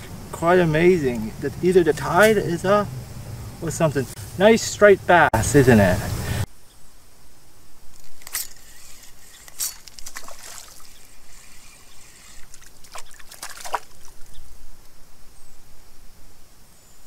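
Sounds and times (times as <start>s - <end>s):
fish splashing at water surface: 9.5s - 11.3s, 12.3s - 14.4s.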